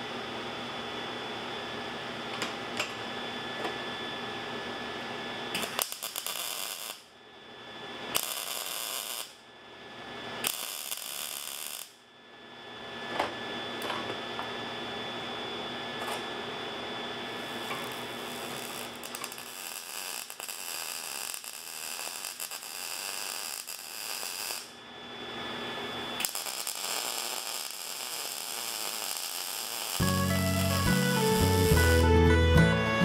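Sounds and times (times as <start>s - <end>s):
shop hum: 0.0s - 33.0s
welding arc crackling: 5.6s - 7.0s, 8.1s - 9.4s, 10.4s - 12.0s, 17.4s - 24.8s, 26.2s - 32.2s.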